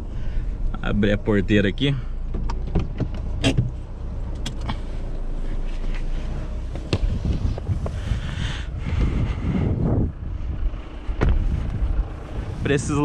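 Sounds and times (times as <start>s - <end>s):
diesel engine idling: 0.0s - 13.0s
car door latch clicks and clunks: 2.3s - 4.7s.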